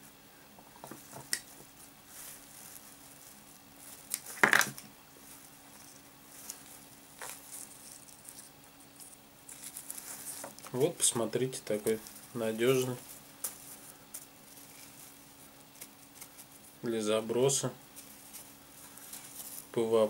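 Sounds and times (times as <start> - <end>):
faint steady hum: 0.0 - 20.0
bag and string rustling: 0.8 - 16.8.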